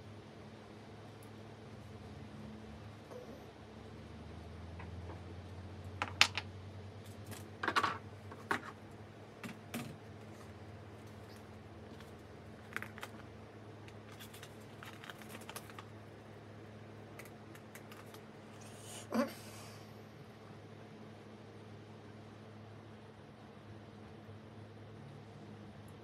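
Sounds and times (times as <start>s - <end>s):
packaging rustling: 10.2s - 16.3s, 17.1s - 18.3s.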